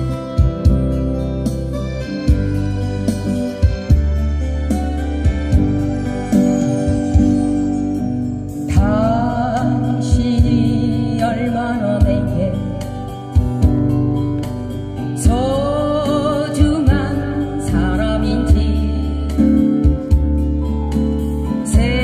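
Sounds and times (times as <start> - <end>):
acoustic guitars strummed: 0.0 - 22.0
sustained bass notes: 0.0 - 22.0
woman singing: 8.6 - 13.4, 15.0 - 20.2, 21.4 - 22.0.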